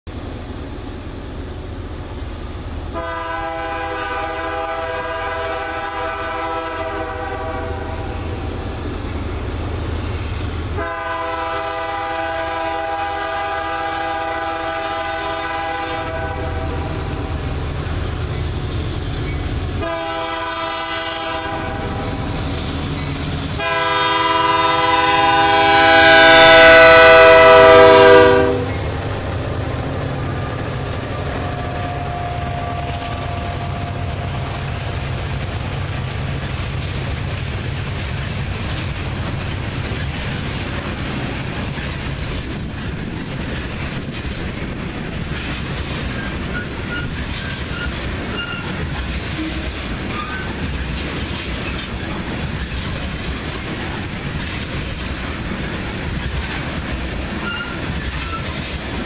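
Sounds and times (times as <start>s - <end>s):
locomotive air horn blasts: 2.9s - 8.3s, 10.8s - 17.1s, 19.8s - 22.3s, 23.6s - 28.8s, 31.2s - 34.2s.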